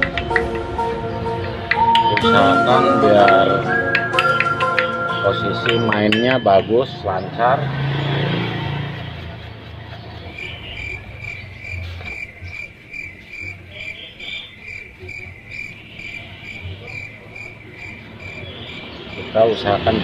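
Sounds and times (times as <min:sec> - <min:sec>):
insect chirping: 0:10.1 - 0:19.5.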